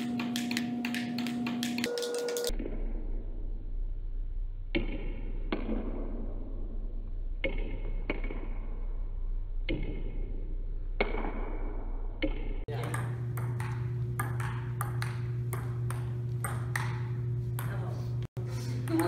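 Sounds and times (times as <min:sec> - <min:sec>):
ping-pong ball clicking: 0:00.0 - 0:02.8, 0:07.4 - 0:08.7, 0:09.7 - 0:10.2, 0:12.2 - 0:17.8
steady low hum: 0:00.0 - 0:19.0.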